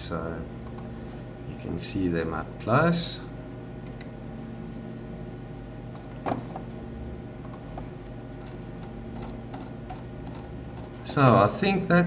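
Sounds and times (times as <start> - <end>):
low electrical hum: 0.0 - 12.0
computer mouse clicking: 7.4 - 7.6.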